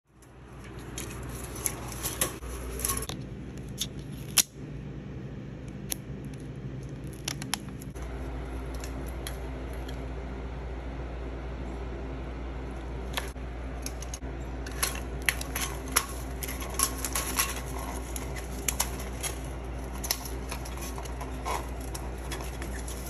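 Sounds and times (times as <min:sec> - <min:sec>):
steady low hum: 0:00.1 - 0:23.0.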